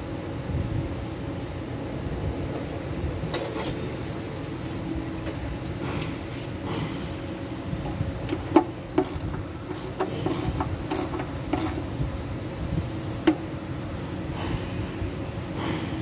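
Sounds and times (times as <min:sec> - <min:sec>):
ratchet wrench clicking: 0:09.0 - 0:11.8.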